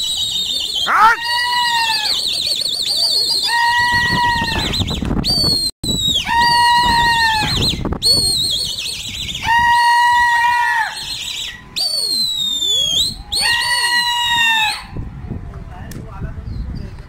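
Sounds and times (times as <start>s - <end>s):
loud whistling: 0.0s - 9.6s, 10.9s - 14.4s.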